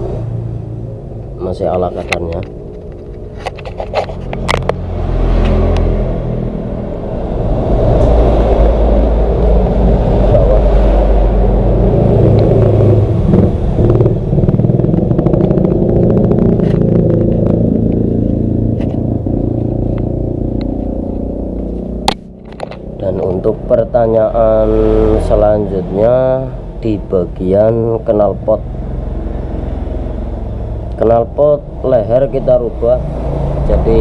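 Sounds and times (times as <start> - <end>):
motorcycle engine running: 8.1 - 25.1.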